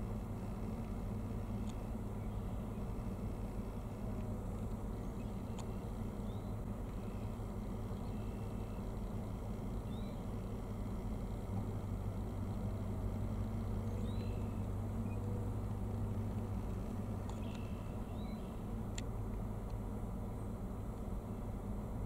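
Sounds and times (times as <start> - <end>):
steady low hum: 0.0 - 22.0
small birds chirping: 4.8 - 10.4, 13.7 - 15.4, 17.1 - 18.7.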